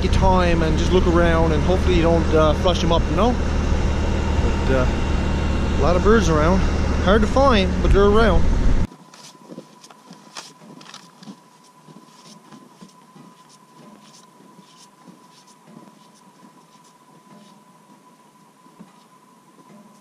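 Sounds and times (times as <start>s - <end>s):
footsteps crunching in snow: 8.9s - 20.0s.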